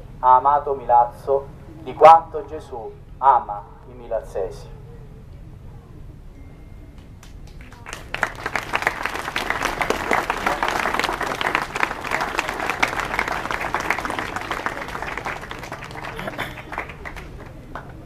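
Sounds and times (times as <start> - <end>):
crowd applauding: 7.2 - 18.0.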